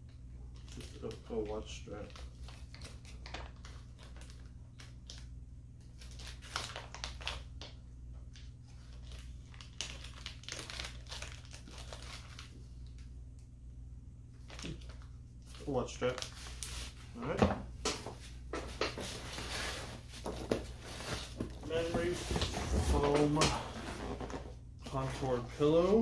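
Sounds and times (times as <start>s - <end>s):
plastic bag crinkling: 0.5s - 5.3s, 6.0s - 13.0s.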